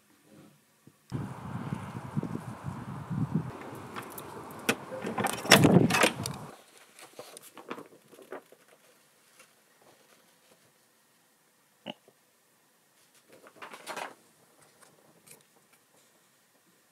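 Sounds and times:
steady outdoor rumble: 0:01.1 - 0:06.5.

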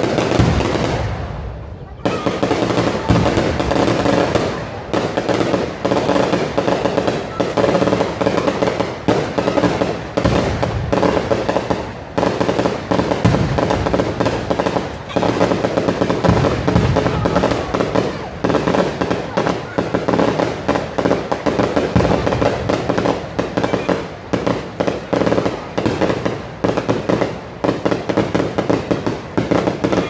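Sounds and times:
firecrackers crackling: 0:00.0 - 0:30.0.

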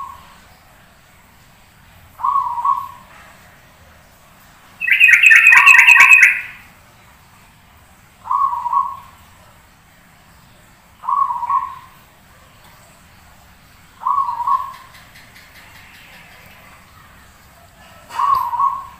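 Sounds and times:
dove cooing: 0:04.8 - 0:06.6, 0:11.0 - 0:11.9, 0:14.0 - 0:14.9, 0:17.7 - 0:18.9
rapid high chirps: 0:04.8 - 0:06.6.

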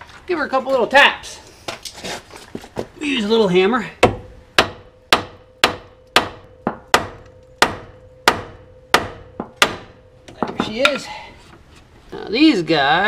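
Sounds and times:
hammer tapping on metal: 0:04.0 - 0:11.1
faint ringing tone: 0:07.3 - 0:10.4.

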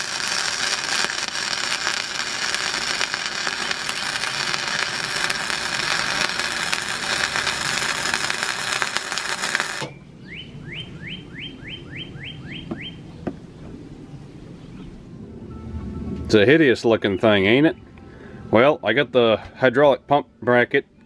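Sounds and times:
arc welding crackling: 0:00.0 - 0:10.0
bird chirping: 0:09.9 - 0:15.1.

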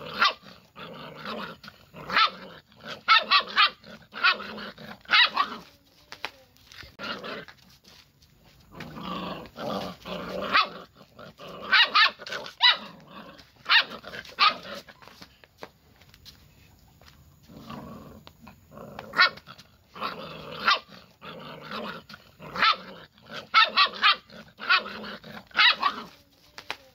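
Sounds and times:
puppy yapping: 0:11.7 - 0:13.0, 0:22.5 - 0:26.2.

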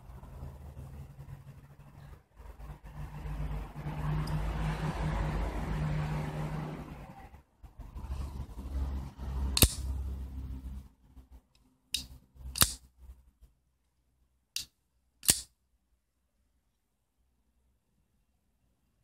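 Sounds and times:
folding knife blade clicks: 0:09.6 - 0:09.9, 0:11.9 - 0:12.8, 0:14.6 - 0:15.5.

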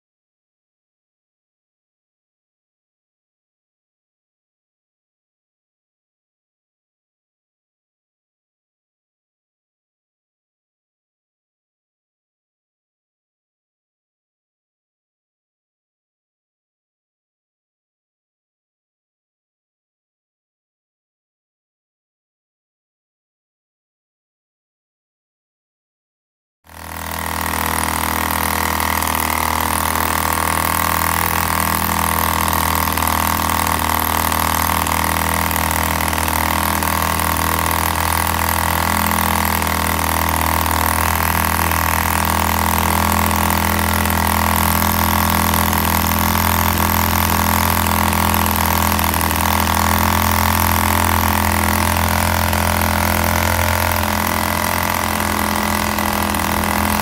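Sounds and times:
model diesel engine running steadily: 0:26.7 - 0:57.0.

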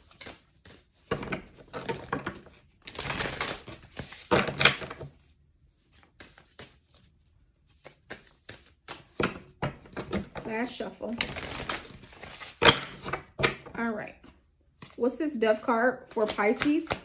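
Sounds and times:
cards shuffling: 0:00.0 - 0:05.2, 0:05.8 - 0:09.2, 0:11.1 - 0:13.3, 0:16.0 - 0:17.0
cards clicking and tapping: 0:07.7 - 0:10.4, 0:16.1 - 0:17.0.

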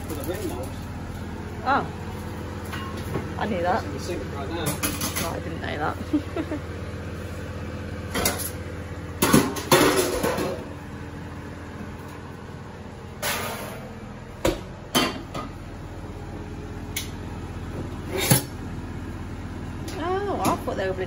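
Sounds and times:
steady low hum: 0:00.0 - 0:21.0
pans and plates clattering: 0:09.2 - 0:10.6.

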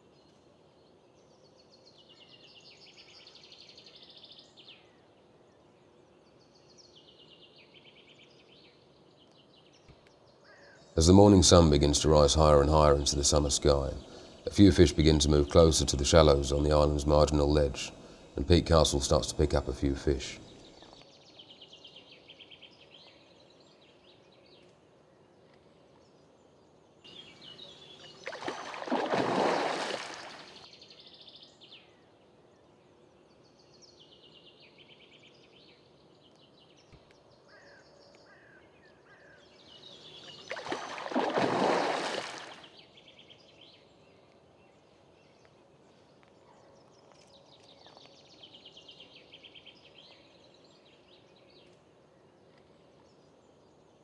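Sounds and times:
fish thrashing in water: 0:28.2 - 0:30.6, 0:40.5 - 0:42.7
water splashing: 0:28.2 - 0:30.6, 0:40.4 - 0:42.7.

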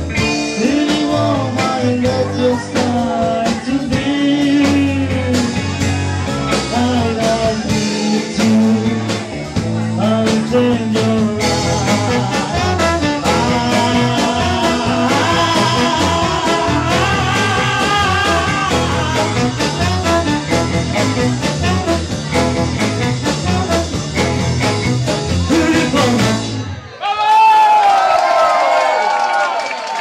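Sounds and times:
live band playing: 0:00.0 - 0:27.0
trumpet melody: 0:11.4 - 0:26.6.

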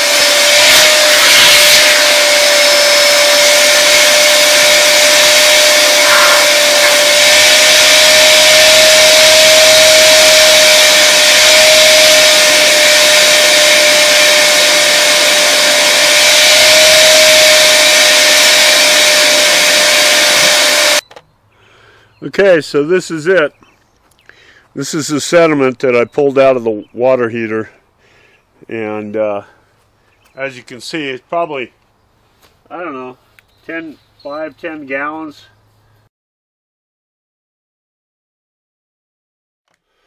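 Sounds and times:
shop vacuum whining: 0:00.0 - 0:21.2.

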